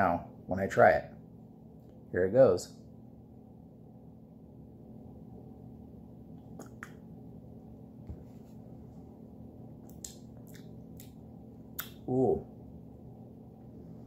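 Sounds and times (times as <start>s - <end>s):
low room hum: 0.0s - 14.0s
mouth clicks and lip smacks: 6.4s - 7.0s, 9.8s - 12.1s.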